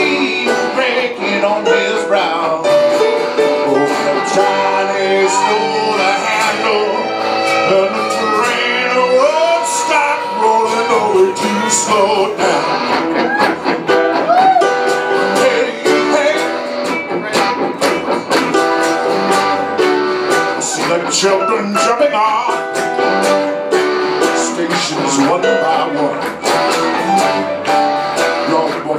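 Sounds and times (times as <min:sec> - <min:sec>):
man singing into a microphone: 0:00.0 - 0:13.3, 0:15.0 - 0:18.1, 0:20.5 - 0:23.4, 0:24.2 - 0:26.4, 0:28.3 - 0:28.9
strummed acoustic guitars: 0:00.0 - 0:28.9.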